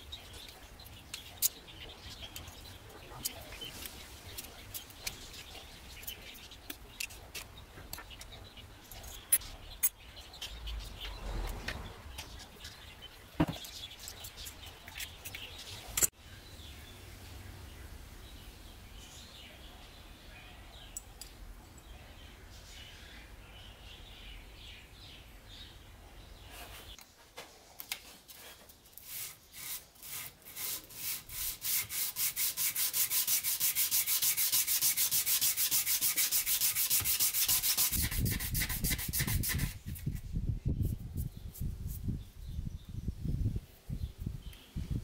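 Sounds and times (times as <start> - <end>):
sanding strokes on sandpaper: 28.3 - 42.1.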